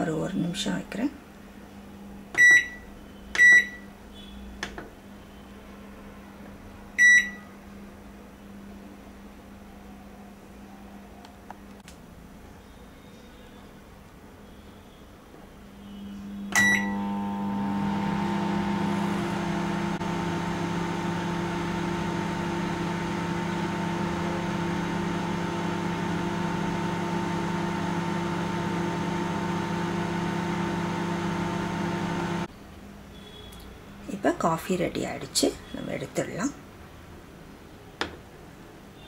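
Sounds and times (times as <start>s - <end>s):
microwave beep: 2.4s - 4.3s, 7.0s - 7.5s, 15.9s - 32.4s
microwave humming: 16.5s - 32.5s.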